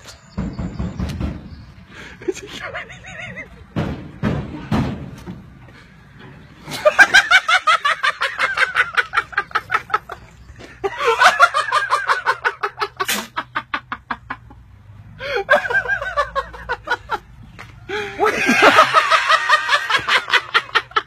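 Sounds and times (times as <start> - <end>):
hearty laughter: 2.0 - 3.8, 6.6 - 21.0.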